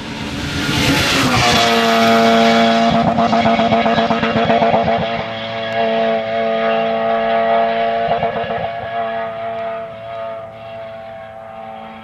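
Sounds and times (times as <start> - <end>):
rally car engine at high revs: 0.0 - 12.0.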